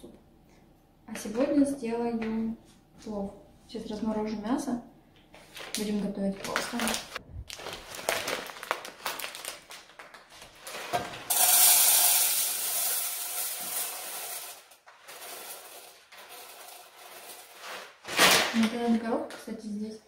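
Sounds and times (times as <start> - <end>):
plastic bag rustling: 5.4 - 19.1
peas rattling onto metal pan: 11.3 - 18.0.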